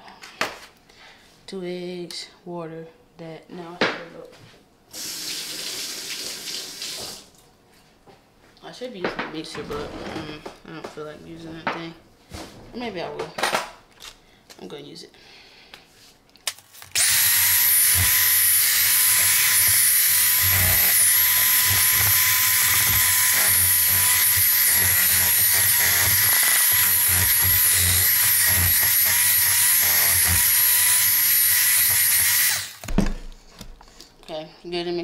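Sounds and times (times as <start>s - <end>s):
electric hand mixer whining: 16.9s - 32.9s.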